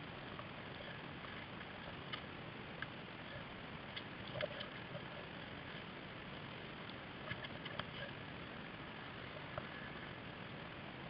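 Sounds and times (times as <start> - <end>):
water hissing around kayak: 0.0 - 11.0
small ticks and drips: 0.2 - 8.4.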